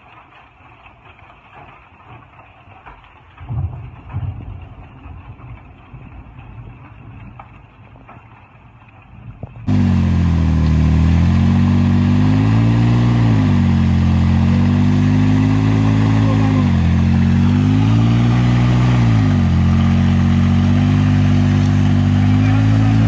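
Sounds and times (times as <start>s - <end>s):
engine running hard under load: 9.7s - 23.0s.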